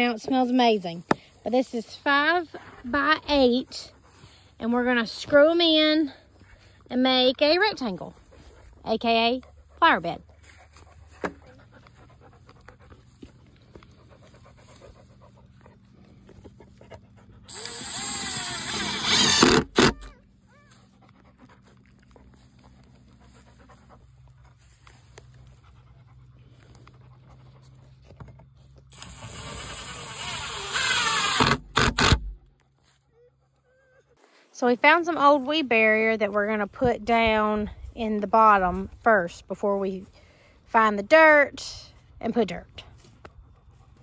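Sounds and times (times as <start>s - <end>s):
sharp clicks of drill clutch: 17.5s - 20.0s, 28.9s - 32.4s
cordless drill whining: 17.5s - 20.1s, 28.9s - 32.4s.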